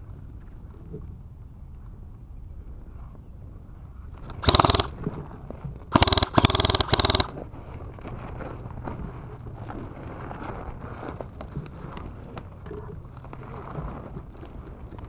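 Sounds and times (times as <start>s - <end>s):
airsoft rifle firing bursts: 4.4s - 5.0s, 5.9s - 7.4s.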